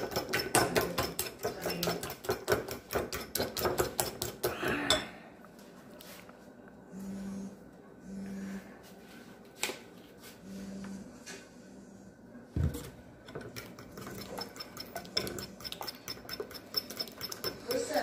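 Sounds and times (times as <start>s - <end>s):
fork clinking against bowl: 13.5s - 17.9s.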